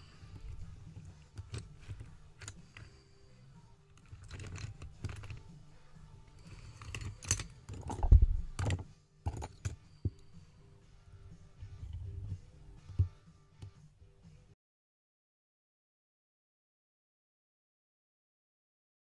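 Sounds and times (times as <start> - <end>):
lock pick clicking and scraping: 0.0 - 3.2, 3.8 - 10.3.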